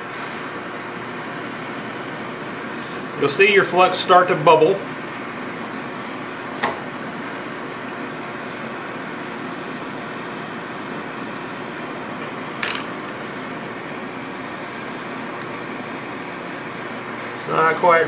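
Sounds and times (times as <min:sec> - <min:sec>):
propane torch hissing: 0:00.0 - 0:11.5.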